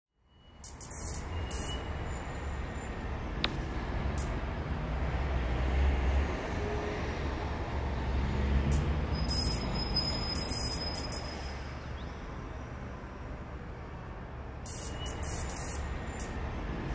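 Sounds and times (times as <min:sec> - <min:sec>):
hiss: 0:00.6 - 0:01.8, 0:14.6 - 0:16.4.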